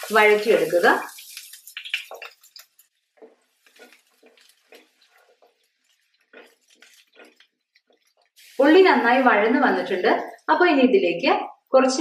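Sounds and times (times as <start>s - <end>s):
shallots sizzling in oil: 0.0s - 11.2s
spatula scraping pan: 3.1s - 9.2s.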